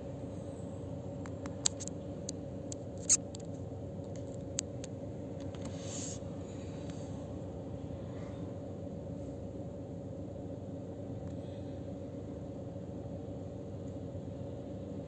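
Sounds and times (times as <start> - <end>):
distant machine hum: 0.0 - 15.0
small clicks: 1.2 - 5.8
brief hiss: 5.6 - 6.3.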